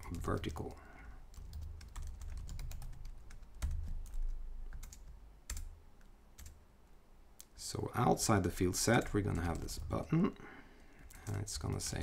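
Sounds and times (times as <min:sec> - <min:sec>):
typing on computer keyboard: 0:00.2 - 0:05.7, 0:11.0 - 0:12.0.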